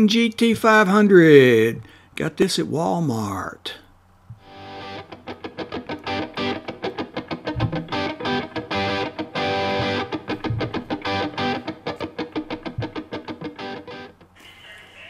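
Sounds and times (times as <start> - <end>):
guitar picking quick notes: 4.4 - 14.2.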